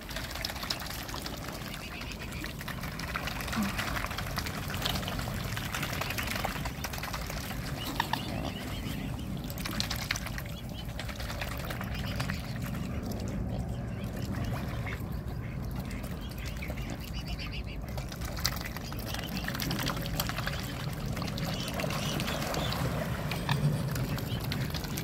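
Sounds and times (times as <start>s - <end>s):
birds splashing in water: 0.0s - 25.0s.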